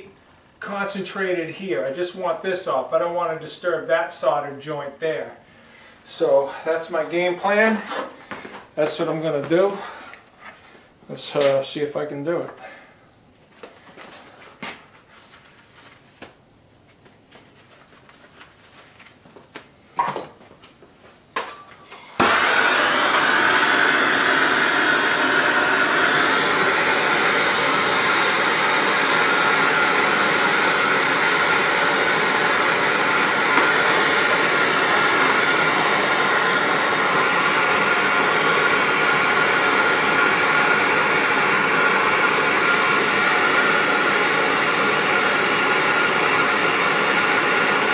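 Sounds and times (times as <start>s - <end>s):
gas torch flame burning: 21.4s - 47.9s.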